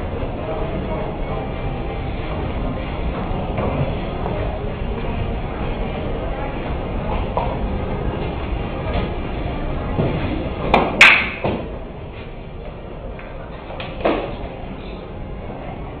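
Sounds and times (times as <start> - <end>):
steady low rumble: 0.0 - 10.7.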